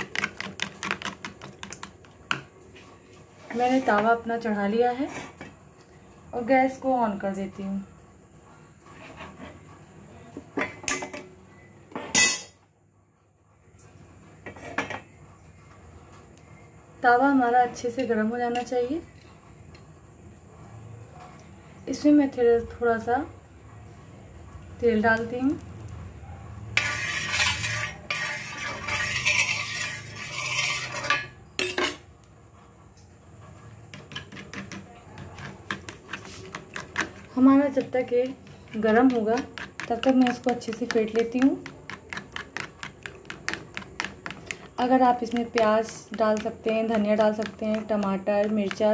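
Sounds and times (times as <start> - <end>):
spatula beating eggs in bowl: 0.0 - 2.5, 26.8 - 31.1, 33.9 - 48.9
spoon scraping griddle: 0.0 - 4.2, 4.9 - 5.6, 8.8 - 9.7, 14.4 - 15.0, 26.7 - 31.8, 33.6 - 48.9
metal cookware clattering: 11.9 - 12.6, 26.8 - 32.1.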